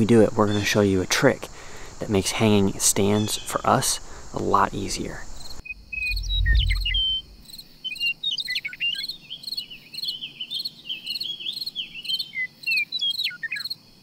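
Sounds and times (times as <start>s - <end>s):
crickets chirping: 0.0s - 14.0s
deep low rumble: 5.6s - 7.6s
bird singing whistled notes: 5.6s - 13.7s.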